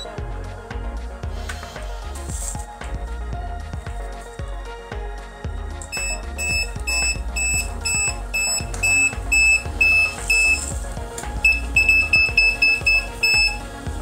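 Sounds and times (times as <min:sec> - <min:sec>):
electronic background music: 0:00.0 - 0:14.0
short high-pitched beeps: 0:05.9 - 0:10.7, 0:11.4 - 0:13.7.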